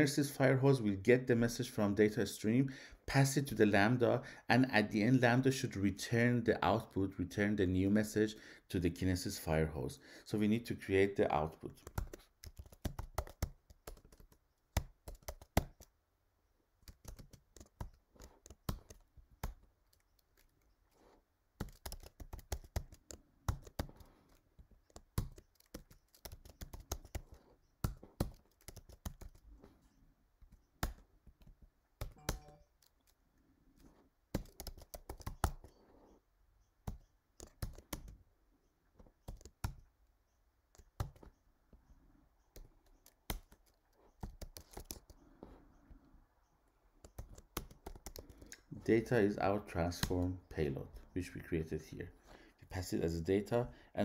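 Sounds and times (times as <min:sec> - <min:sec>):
computer keyboard typing: 0:11.7 - 0:15.9, 0:16.8 - 0:20.8, 0:21.6 - 0:29.6, 0:30.4 - 0:33.2, 0:33.8 - 0:35.8, 0:36.8 - 0:38.2, 0:39.0 - 0:39.9, 0:40.7 - 0:41.4, 0:42.5 - 0:45.2, 0:47.0 - 0:48.6.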